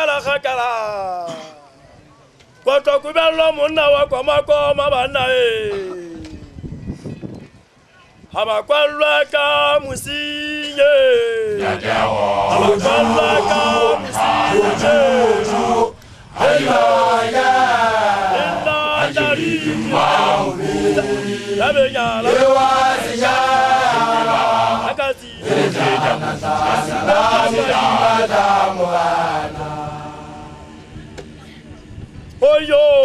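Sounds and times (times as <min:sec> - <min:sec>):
man chanting loudly: 0:08.5 - 0:17.1, 0:17.8 - 0:30.0.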